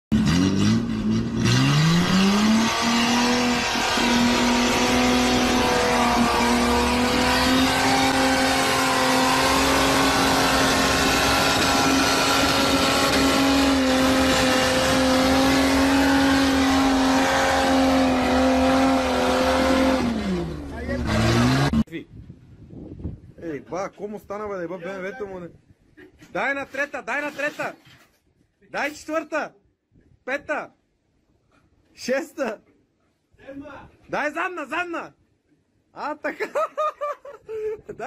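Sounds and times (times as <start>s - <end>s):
truck engine revving: 0.1s - 21.9s.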